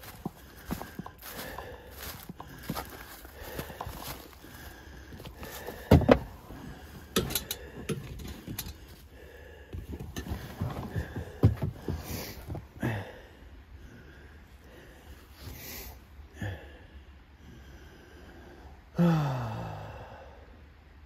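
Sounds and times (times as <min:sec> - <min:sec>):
person breathing: 0:00.0 - 0:20.8
gear knocking and clanking: 0:07.1 - 0:08.8.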